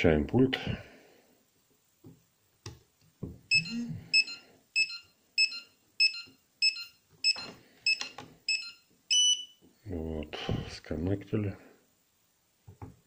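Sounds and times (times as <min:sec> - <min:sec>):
short high beeps: 0:03.5 - 0:09.5.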